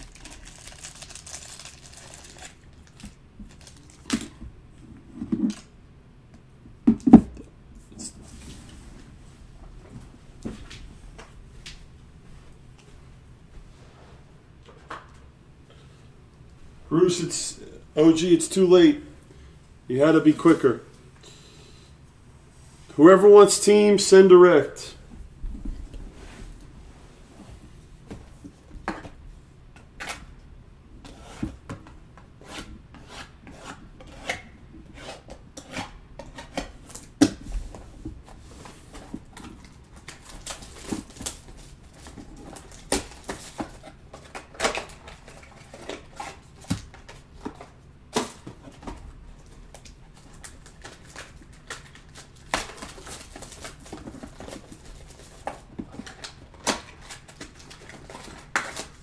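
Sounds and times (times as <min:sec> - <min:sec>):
cardboard packs rustling: 0:00.0 - 0:04.4, 0:38.8 - 0:59.0.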